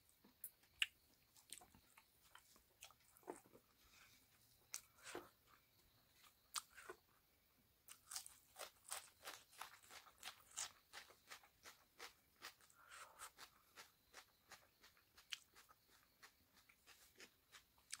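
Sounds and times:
close-up chewing with mouth smacks: 0.7 - 3.7, 7.9 - 18.0.

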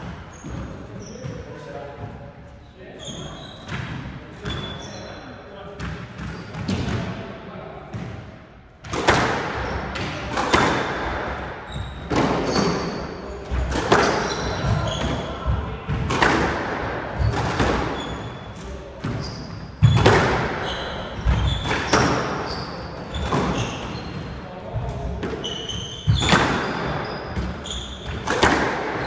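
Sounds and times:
squash ball hits echoing: 5.8 - 7.2, 7.9 - 29.0.

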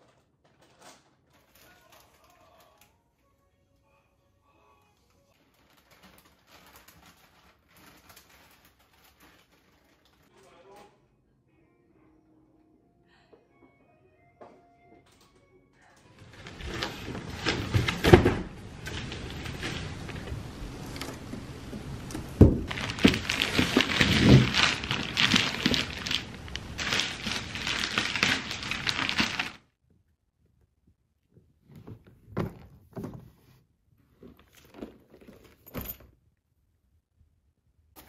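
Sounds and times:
plastic wrapping crinkling: 0.4 - 2.9, 5.4 - 10.4, 16.2 - 29.6
box and suitcase thunks: 16.3 - 20.4, 22.2 - 26.2.

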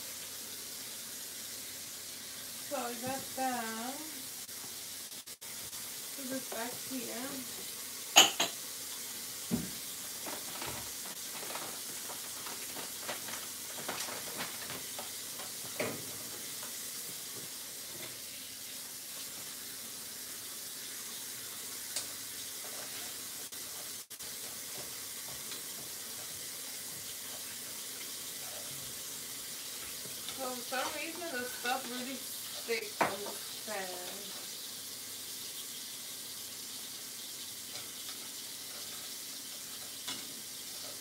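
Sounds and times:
rice sizzling in a pot: 0.0 - 41.0
kitchen items clicking and knocking: 8.2 - 8.6.

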